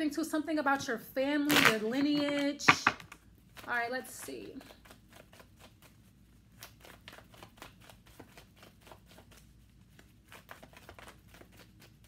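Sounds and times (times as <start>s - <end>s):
cards shuffling clicks: 1.5s - 3.2s.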